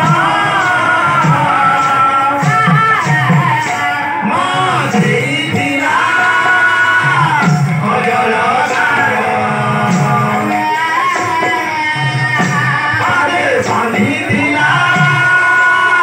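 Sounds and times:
devotional singing through a pa: 0.0s - 16.0s
percussion strikes: 0.0s - 16.0s.

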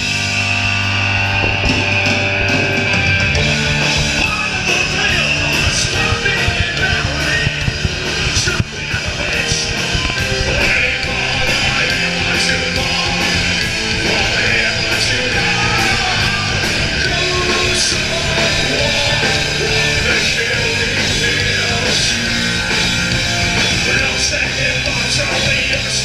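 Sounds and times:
drums with cymbal crashes: 0.0s - 26.0s
electric guitar: 0.0s - 26.0s
person singing into a microphone: 4.0s - 22.5s, 23.7s - 26.0s.

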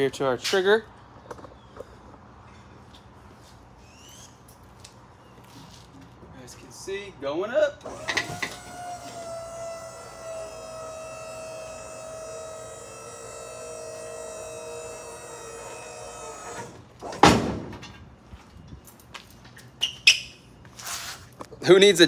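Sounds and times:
hydraulic pump motor whine: 7.8s - 16.8s
loud metal clunk: 17.0s - 18.0s.

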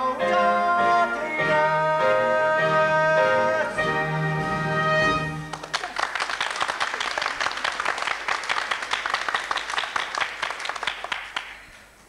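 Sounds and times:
audience applause: 5.4s - 11.6s.

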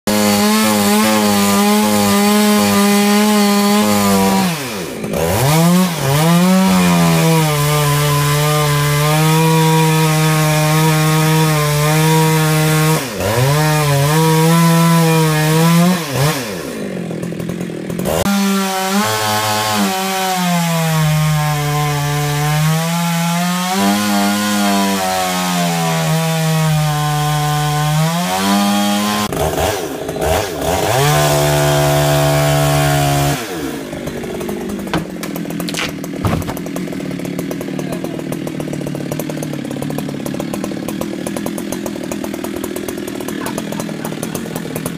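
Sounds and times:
chainsaw cutting wood: 0.1s - 44.9s.

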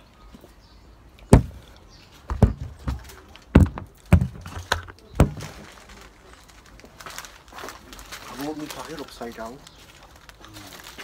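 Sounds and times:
dull thumps: 1.3s - 5.7s.

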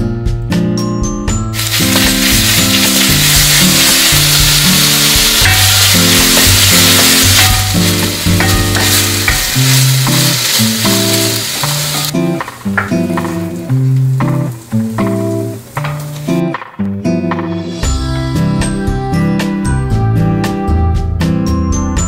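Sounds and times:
background music: 0.0s - 22.0s
cucumber slices sizzling in a pan: 1.6s - 16.4s
wooden spatula turning food: 1.6s - 16.4s.

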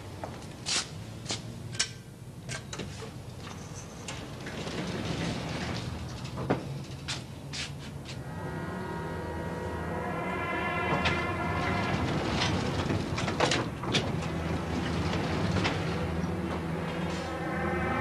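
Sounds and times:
lift doors sliding open: 2.5s - 18.0s
music: 8.2s - 18.0s.

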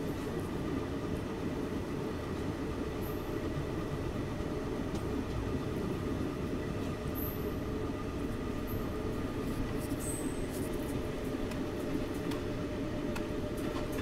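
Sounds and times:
train running on track: 0.0s - 14.0s.

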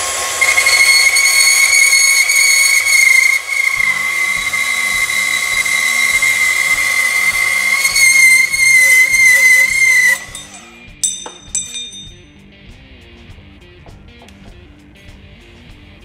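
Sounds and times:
band saw whining: 0.0s - 12.2s.

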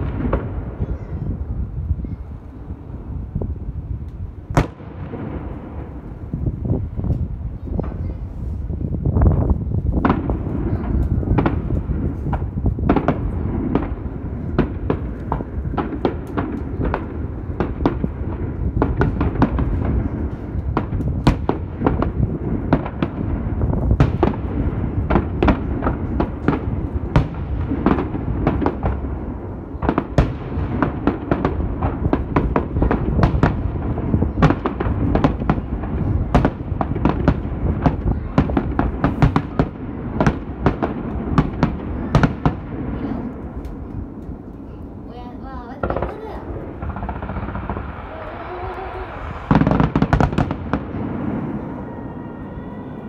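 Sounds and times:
fireworks bangs and crackles: 0.0s - 53.0s
low rumble: 46.4s - 53.0s.

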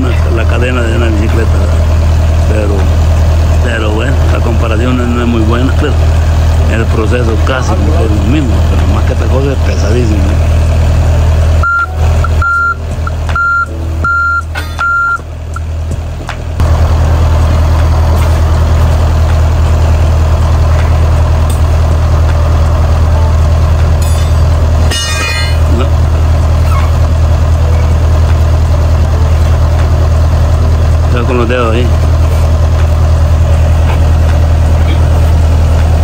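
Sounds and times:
diesel engine running: 0.0s - 36.0s
travel alarm beeping: 11.6s - 15.2s
metallic clatter: 24.0s - 25.9s.

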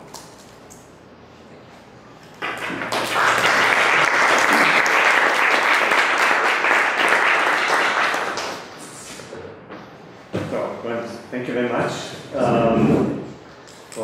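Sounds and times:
audience applauding: 2.4s - 8.8s.

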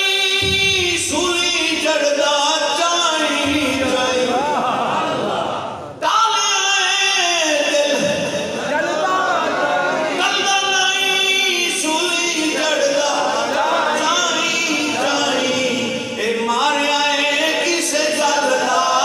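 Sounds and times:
man singing unaccompanied: 0.0s - 4.4s, 10.2s - 19.0s.

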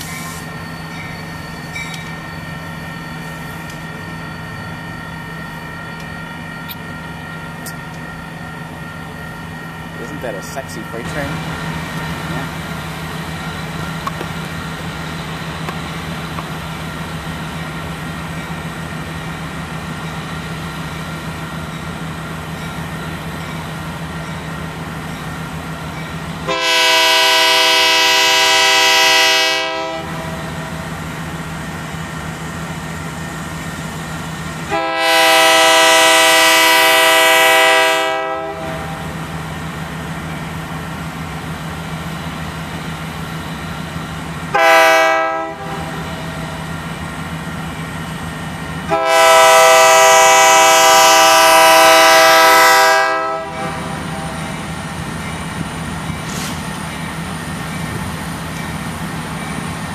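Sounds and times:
train rumble: 0.0s - 59.9s
locomotive air horn blasts: 26.4s - 30.5s, 34.7s - 39.0s, 44.5s - 46.0s, 48.9s - 54.4s.

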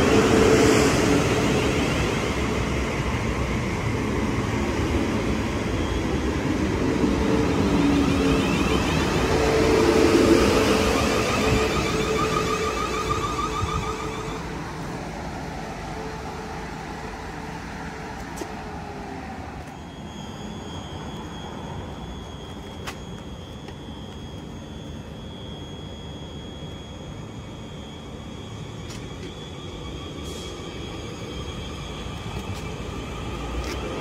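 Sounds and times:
train wheels rumbling: 0.0s - 24.7s
thin high whine: 3.8s - 34.0s.

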